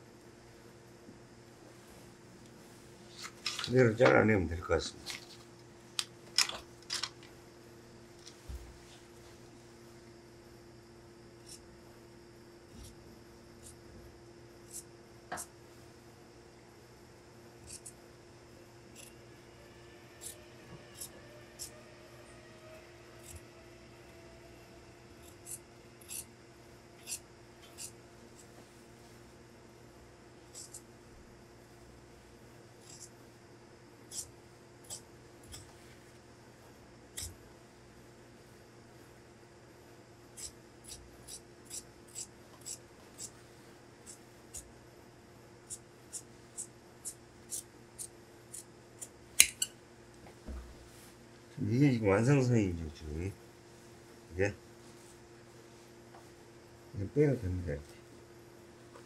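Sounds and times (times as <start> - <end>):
shears snipping fabric: 11.4 - 11.7, 17.6 - 18.0, 25.2 - 26.3, 27.0 - 28.6, 30.4 - 30.9, 32.8 - 33.2, 34.1 - 36.0, 40.3 - 43.4, 44.0 - 44.7, 45.6 - 49.7.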